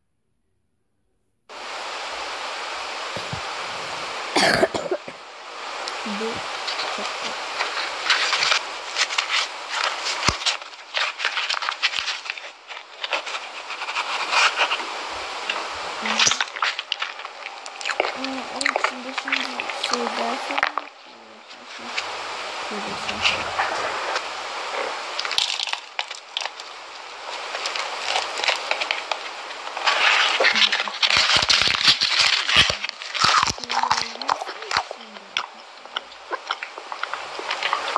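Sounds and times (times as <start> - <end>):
paper bag crackling: 6.0 - 20.6, 22.7 - 37.9
cardboard tube crinkling and tearing: 6.6 - 20.8, 23.0 - 37.9.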